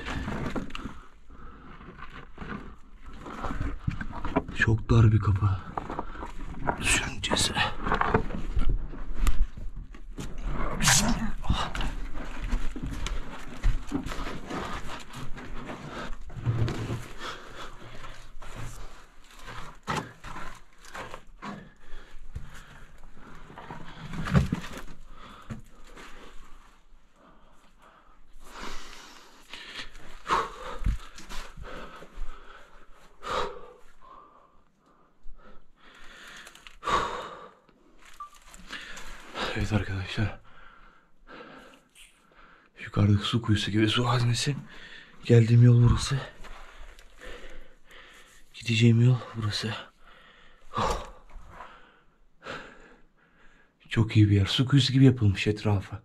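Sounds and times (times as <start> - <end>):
man breathing hard: 27.2 - 37.8, 46.5 - 48.6, 50.0 - 53.9.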